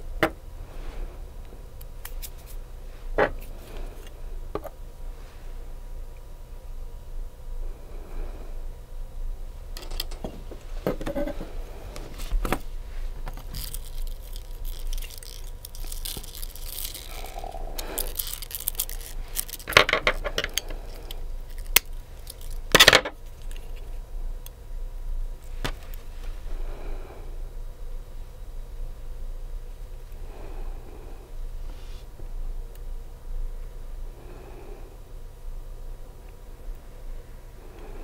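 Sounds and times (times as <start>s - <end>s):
nail art tools clicking and scraping: 13.3s - 23.8s.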